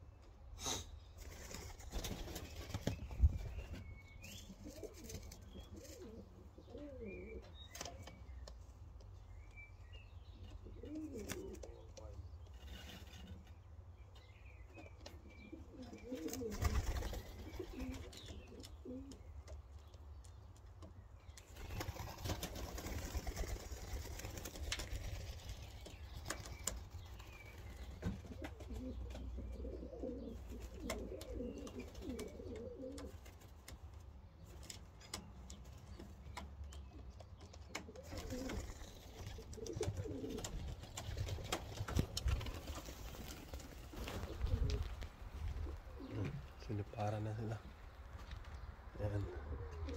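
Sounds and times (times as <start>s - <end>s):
pigeons cooing: 4.3s - 8.2s, 10.5s - 12.1s, 15.0s - 19.3s, 21.6s - 33.3s, 37.7s - 47.7s, 48.9s - 49.9s.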